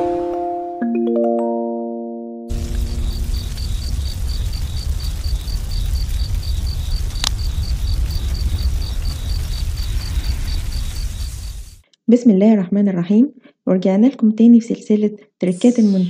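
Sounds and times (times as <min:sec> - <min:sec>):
crickets chirping: 0:02.5 - 0:11.8
low rumble: 0:02.5 - 0:11.8
sharp crack: 0:02.5 - 0:11.8.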